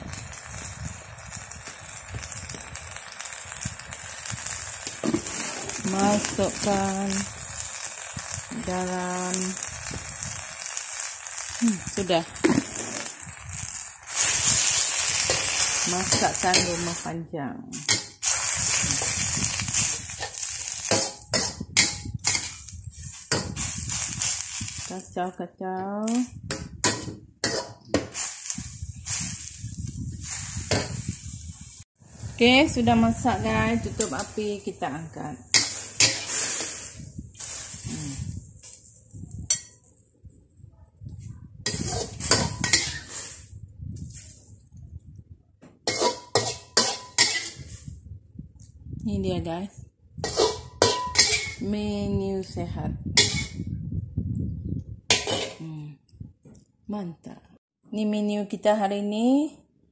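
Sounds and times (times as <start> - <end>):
leaves sizzling in a wok: 0.0 - 39.8, 41.6 - 44.7, 45.8 - 48.1, 49.0 - 53.7, 55.1 - 55.8
metal ladle scraping a wok: 1.8 - 6.8, 12.4 - 17.1, 17.8 - 25.0, 26.8 - 29.6, 32.4 - 38.4, 41.7 - 43.5, 45.9 - 47.9, 50.2 - 51.7, 53.1 - 53.6, 55.1 - 55.6.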